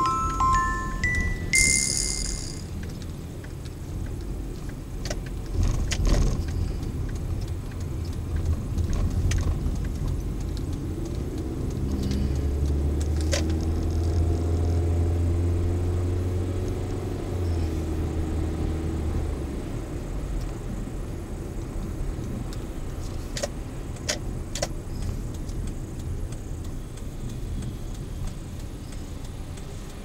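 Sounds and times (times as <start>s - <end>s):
car engine and road noise: 0.0s - 30.0s
sharp clicks and rattles: 1.2s - 14.7s.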